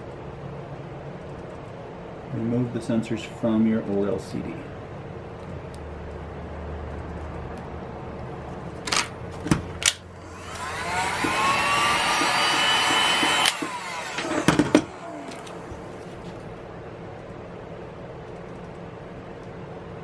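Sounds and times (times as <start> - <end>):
heat gun fan whine: 8.6 - 17.2
sharp clicks and knocks: 10.6 - 15.6.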